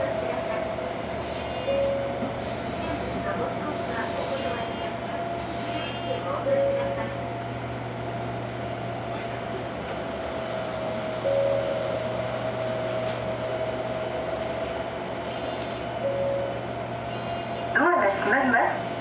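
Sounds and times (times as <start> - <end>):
train low hum: 0.0 - 19.0.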